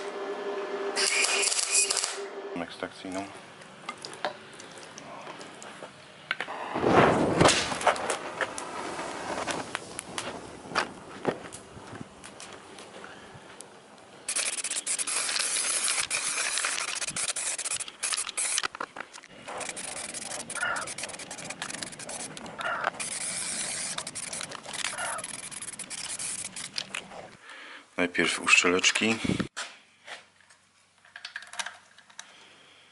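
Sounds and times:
spray paint can hissing: 14.3s - 18.7s, 19.5s - 26.9s.

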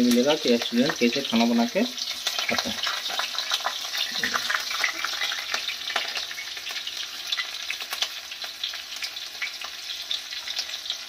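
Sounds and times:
oil sizzling and crackling: 0.0s - 11.0s
metal spatula scraping a pan: 0.7s - 7.6s.

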